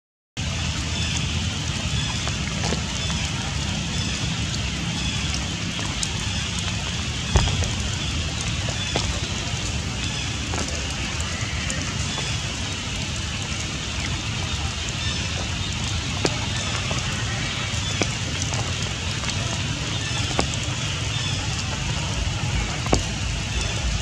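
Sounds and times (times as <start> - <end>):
rain falling through leaves: 0.4 - 24.0
sharp drip taps: 1.1 - 24.0.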